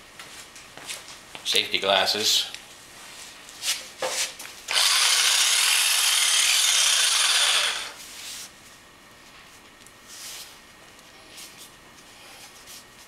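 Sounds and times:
electric saber saw running: 4.7 - 8.0.

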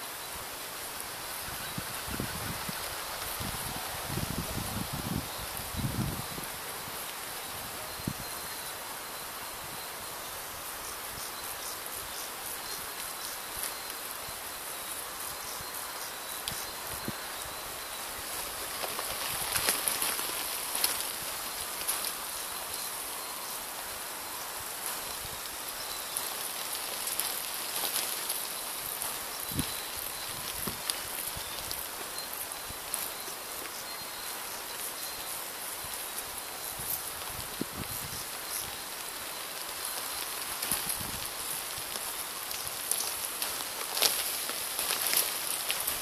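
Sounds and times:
steady high hiss: 0.0 - 46.0
small crackles and clicks: 18.2 - 22.4, 24.8 - 33.8, 36.8 - 46.0.

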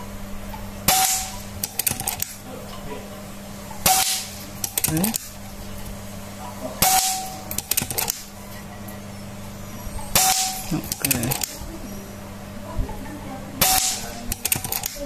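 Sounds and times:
air rifle shot crack: 0.9 - 2.4, 3.8 - 5.3, 13.6 - 14.9
quick run of clicks: 1.6 - 2.4, 7.5 - 8.3, 14.3 - 15.0.

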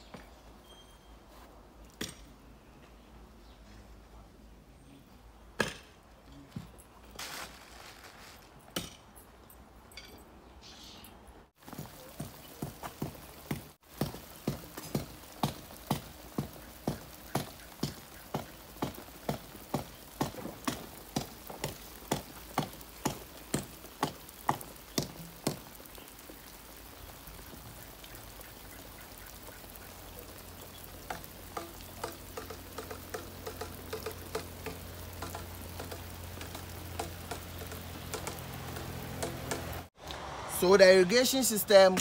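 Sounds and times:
sprinkler spraying water: 11.6 - 40.0.

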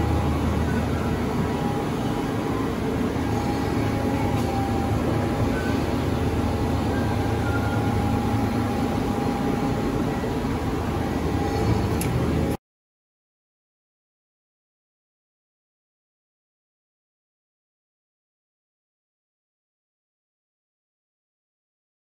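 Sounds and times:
faint high whine: 0.0 - 12.6
industrial machinery humming: 0.0 - 12.6.

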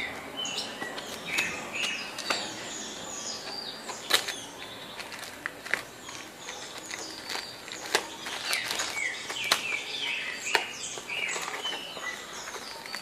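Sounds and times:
bird chirping: 0.0 - 13.0
knife slitting packaging: 3.9 - 9.9.

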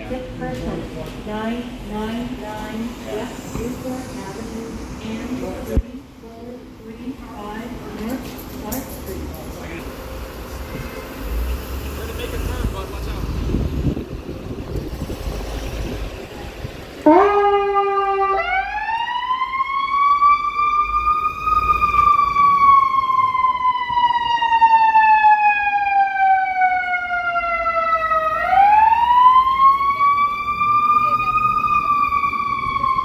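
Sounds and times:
engine and traffic noise: 0.0 - 33.0
ambulance siren wailing: 17.0 - 33.0.

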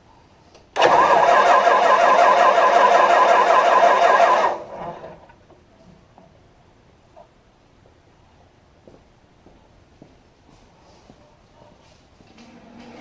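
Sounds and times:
engine starter cranking: 0.8 - 5.3.

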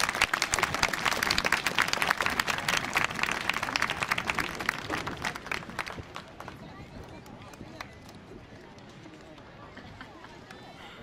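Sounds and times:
audience clapping: 0.0 - 8.2.

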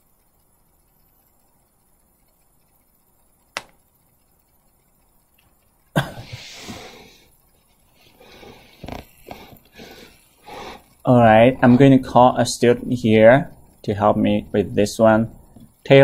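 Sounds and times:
sharp click: 3.5 - 3.8.

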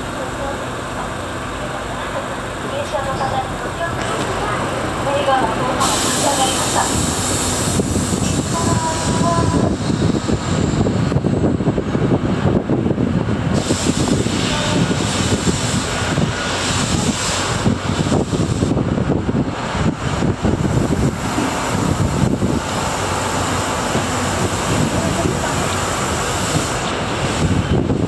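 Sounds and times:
train wheels rumbling: 0.0 - 28.0
hiss: 5.8 - 10.5, 13.5 - 18.8, 20.5 - 27.8.

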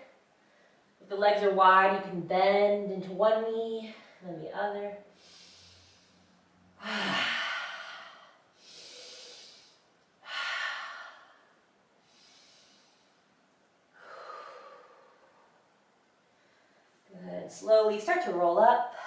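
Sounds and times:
woman breathing deeply: 5.1 - 16.9.

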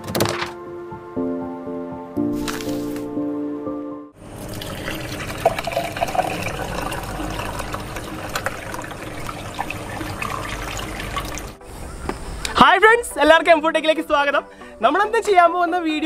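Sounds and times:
fountain water trickling and splashing: 4.3 - 11.6.

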